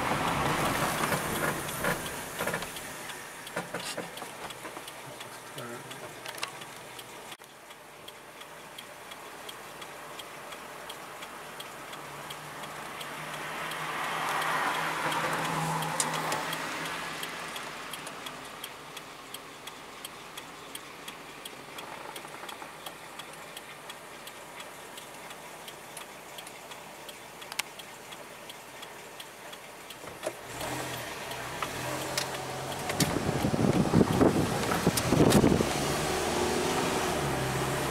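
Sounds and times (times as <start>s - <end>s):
car pulling away with road noise: 0.0s - 37.9s
turn signal clicking: 0.0s - 37.9s
low engine hum: 30.4s - 37.9s.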